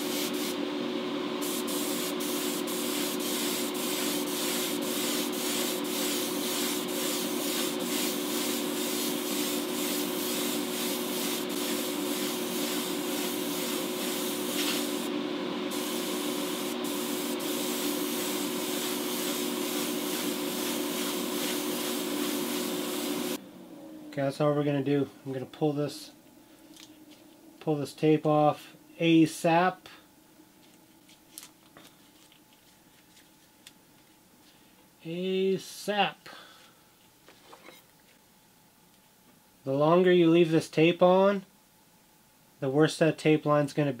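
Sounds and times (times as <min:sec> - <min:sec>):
airbrush hissing: 0:00.0 - 0:00.6, 0:01.4 - 0:23.4.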